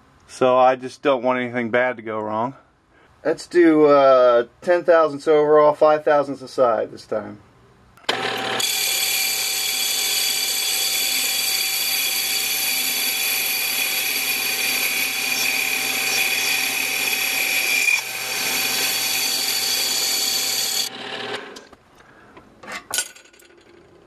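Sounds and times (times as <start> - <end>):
lathe motor and gear whine: 8.1 - 21.7.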